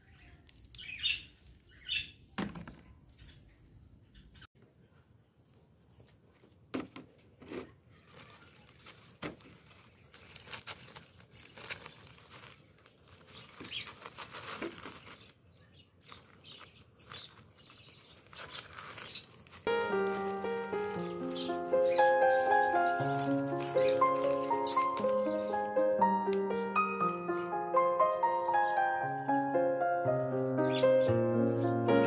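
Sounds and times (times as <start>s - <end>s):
potting soil rustling: 0.0s - 2.1s, 7.4s - 30.8s
plastic bag crinkling and tearing: 7.9s - 26.4s.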